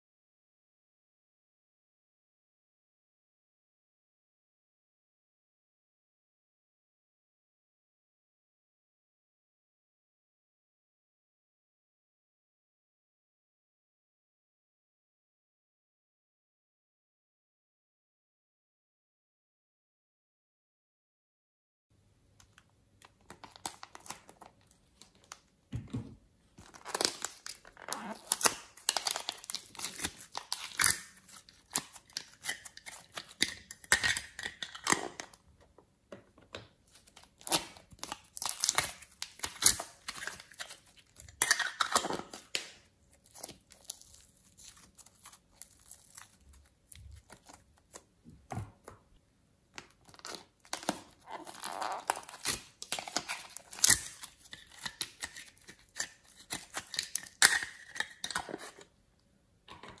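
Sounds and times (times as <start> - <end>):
plastic trays crackling and tearing: 23.2 - 25.4, 26.6 - 35.3, 36.9 - 48.1, 49.8 - 58.8.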